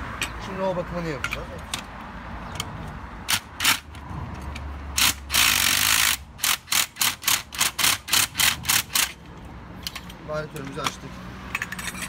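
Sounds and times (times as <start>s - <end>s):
impact wrench bursts: 3.3s - 4.0s, 4.9s - 9.2s.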